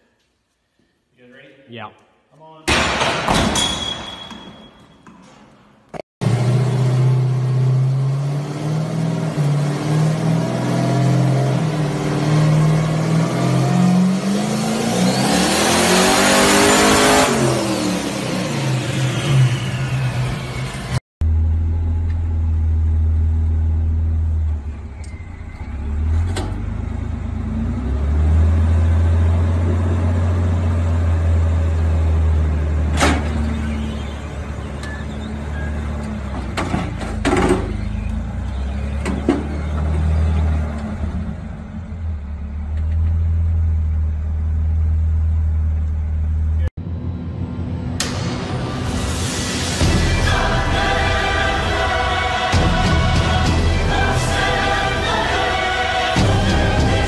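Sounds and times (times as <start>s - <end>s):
buggy engine revving: 6.2s - 21.7s, 23.0s - 44.8s, 50.2s - 57.0s
jeep engine running under load: 6.2s - 48.7s, 49.8s - 57.0s.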